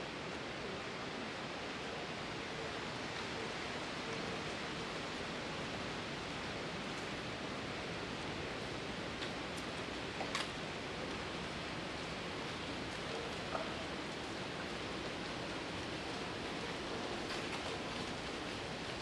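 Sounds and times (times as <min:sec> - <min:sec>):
wind rustling leaves: 0:00.0 - 0:19.0.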